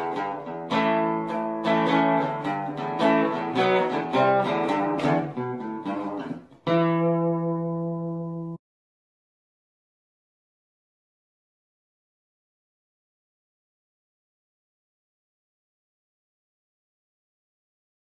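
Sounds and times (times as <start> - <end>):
acoustic guitar chords: 0.0 - 8.6.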